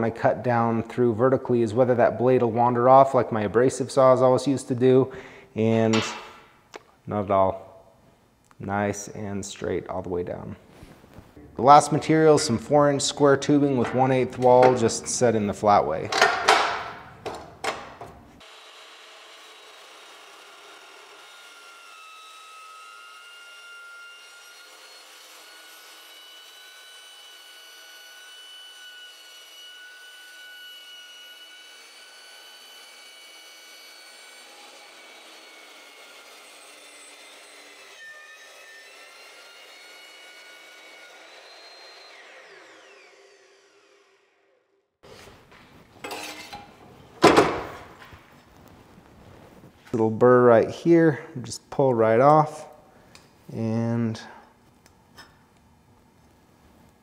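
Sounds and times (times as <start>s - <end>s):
chop saw cutting steel tubing: 18.4s - 44.3s.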